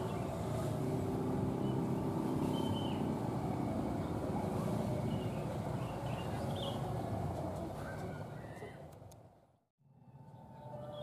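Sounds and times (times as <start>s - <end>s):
motorcycles passing close by: 0.0s - 8.4s
faint high bird chirps: 1.6s - 3.2s.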